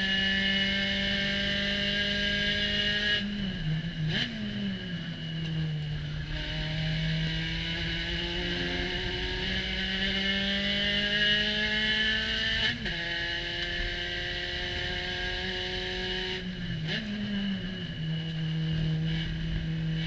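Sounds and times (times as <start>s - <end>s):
race car engine at full throttle: 0.0s - 20.0s.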